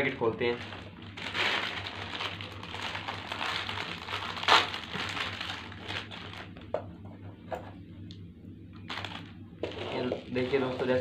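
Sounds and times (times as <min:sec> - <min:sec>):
snack wrapper crinkling: 0:00.6 - 0:06.6.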